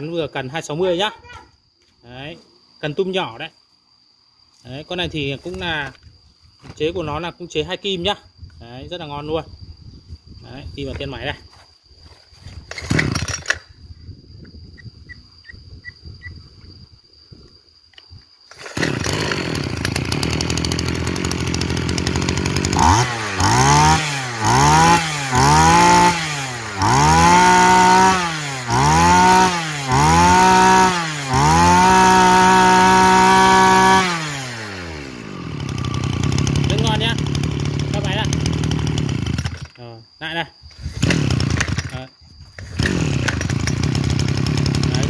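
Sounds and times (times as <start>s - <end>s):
brush-cutter engine revving: 12.7s - 13.6s, 18.5s - 39.8s, 40.8s - 45.0s.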